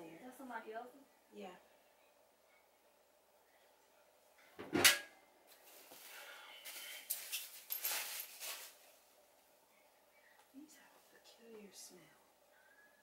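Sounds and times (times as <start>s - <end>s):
plastic bag crinkling: 6.7s - 8.9s.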